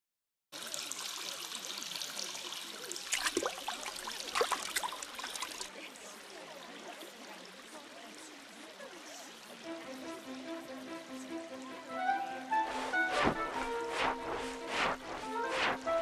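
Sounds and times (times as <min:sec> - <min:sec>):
trickling water: 0:00.6 - 0:12.3
brief sharp sounds: 0:12.6 - 0:16.0.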